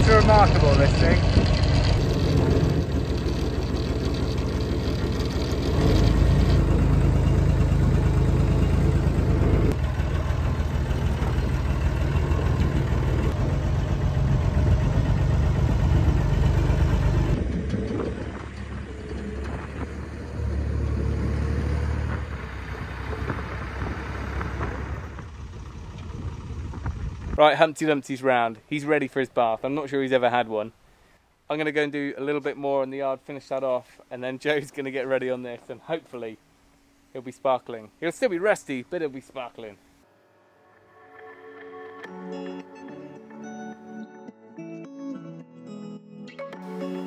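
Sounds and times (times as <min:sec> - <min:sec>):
diesel engine running: 0:00.0 - 0:27.4.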